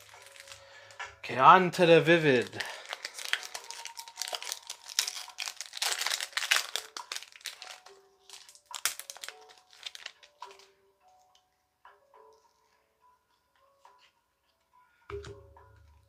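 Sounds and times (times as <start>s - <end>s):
foil wrapper crinkling and tearing: 0.0s - 1.0s, 1.8s - 10.7s.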